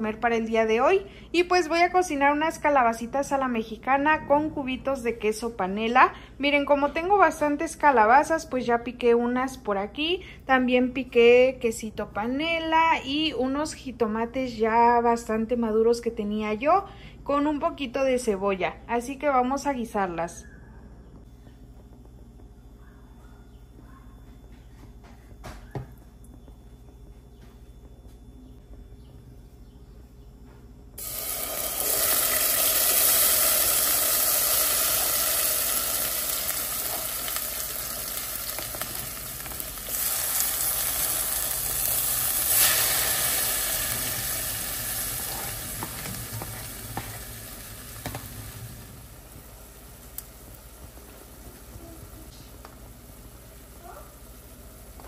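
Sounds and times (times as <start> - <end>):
vegetables sizzling in hot oil: 31.0 - 55.0.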